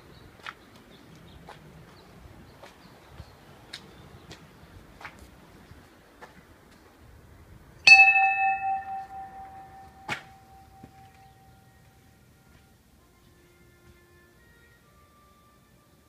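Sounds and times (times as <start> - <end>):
bell-like chime ringing: 7.9 - 11.6.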